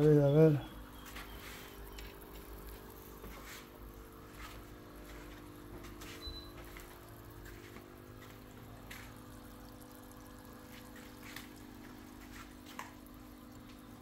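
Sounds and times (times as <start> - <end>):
air stones bubbling in fish tanks: 0.0 - 14.0
drips and ticks: 0.0 - 14.0
steady hum: 0.0 - 14.0.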